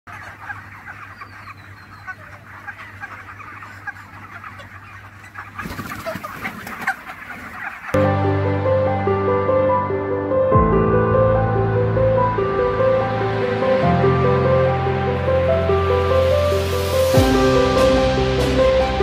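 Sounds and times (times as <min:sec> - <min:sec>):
chickens clucking: 0:00.1 - 0:08.0
music: 0:08.0 - 0:19.0.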